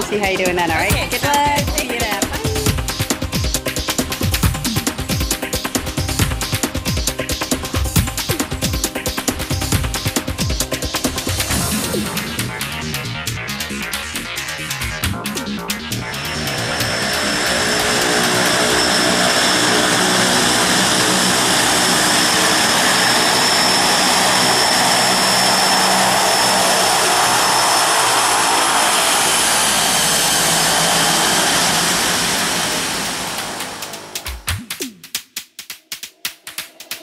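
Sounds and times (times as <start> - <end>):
turboprop engines droning: 0.0 - 35.1
high whine: 7.2 - 35.0.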